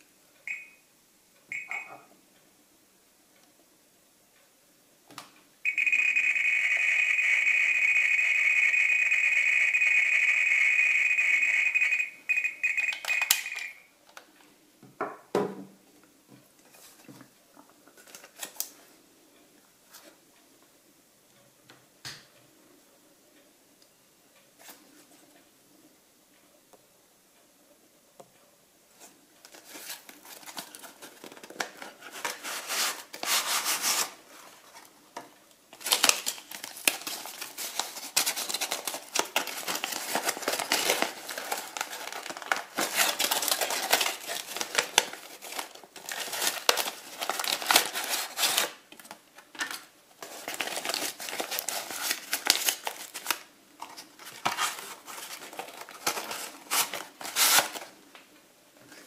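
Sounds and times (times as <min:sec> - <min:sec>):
paper rustling and crinkling: 0:17.9 - 0:18.8, 0:29.4 - 0:34.9, 0:35.7 - 0:58.0.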